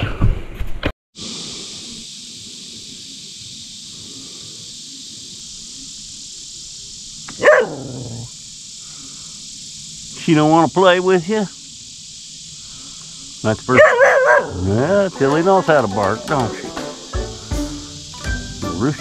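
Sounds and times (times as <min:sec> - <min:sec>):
crickets chirping: 0:01.2 - 0:19.0
dog barking: 0:07.3 - 0:08.3, 0:13.7 - 0:14.9.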